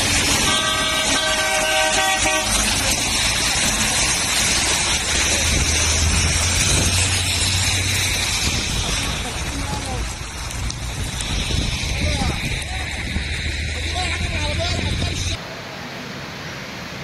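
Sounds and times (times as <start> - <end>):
heavy rain: 0.0 - 17.0
traffic on a wet road: 0.0 - 17.0
vehicle horn: 0.4 - 2.7.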